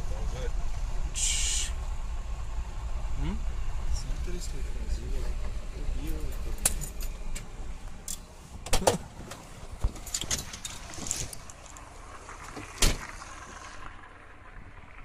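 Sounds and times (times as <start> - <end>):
car door shutting thump: 12.8 - 13.1.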